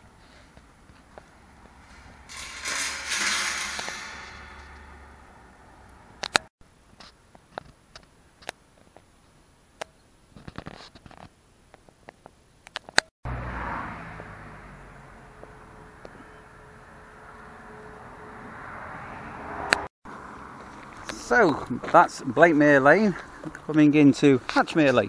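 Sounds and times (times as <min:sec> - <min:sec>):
road traffic rushing: 0:00.1 - 0:06.5, 0:13.2 - 0:25.0.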